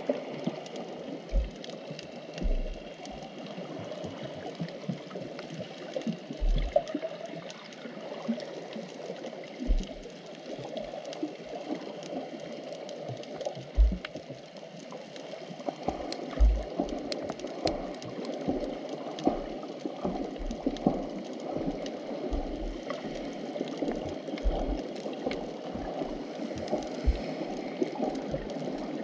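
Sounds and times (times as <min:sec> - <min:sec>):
crackling clicks: 0:00.0 - 0:07.8, 0:08.5 - 0:29.0
underwater surf churning: 0:00.0 - 0:29.0
low underwater thumps: 0:01.3 - 0:01.7, 0:02.4 - 0:03.2, 0:06.4 - 0:06.8, 0:09.6 - 0:10.1, 0:13.8 - 0:14.1, 0:16.4 - 0:16.8, 0:20.4 - 0:21.0, 0:21.6 - 0:22.8, 0:24.4 - 0:27.4.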